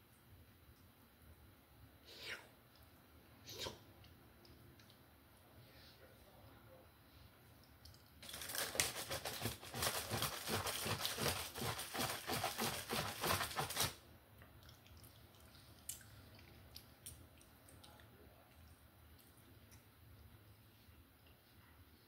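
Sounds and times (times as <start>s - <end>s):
dense crackling and crunching: 8.2s - 14.0s.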